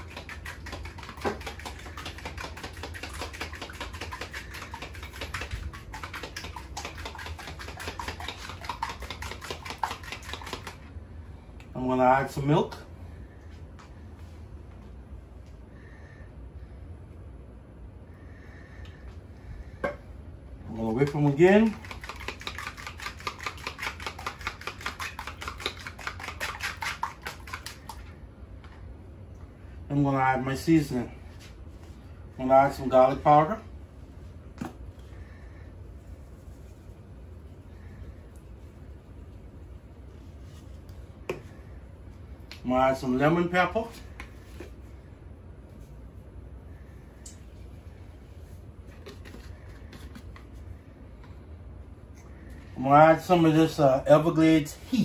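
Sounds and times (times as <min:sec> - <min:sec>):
whisk clicking against bowl: 0:00.0 - 0:10.8, 0:21.0 - 0:28.0.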